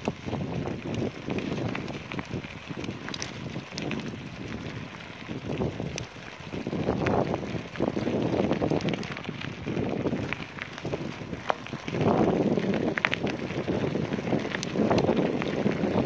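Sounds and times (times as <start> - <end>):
bicycle tyres rolling on gravel: 0.0 - 16.0
small clicks and rattles: 0.0 - 16.0
wind buffeting microphone: 0.0 - 16.0.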